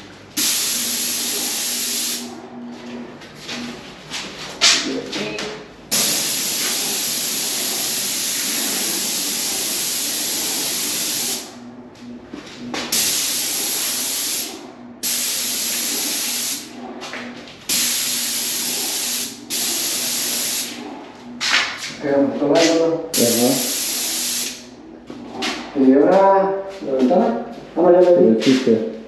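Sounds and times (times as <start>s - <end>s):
paint spray gun hissing: 0.4s - 2.2s, 5.9s - 11.5s, 12.9s - 16.6s, 17.7s - 20.7s, 23.2s - 24.6s.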